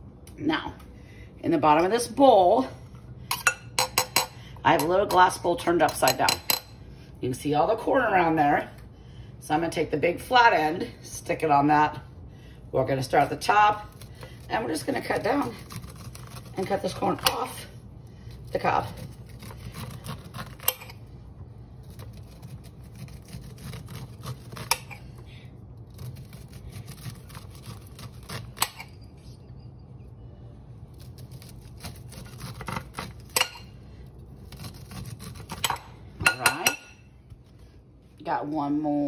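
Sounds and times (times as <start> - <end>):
knife scraping corn kernels: 14.5 - 17.6, 18.5 - 21.0, 21.9 - 25.1.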